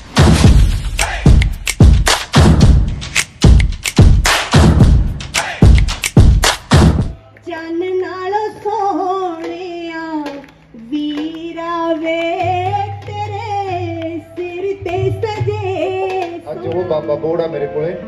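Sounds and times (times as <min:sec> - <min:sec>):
loud drumbeat: 0:00.0 - 0:07.2
woman singing into a microphone: 0:07.4 - 0:16.5.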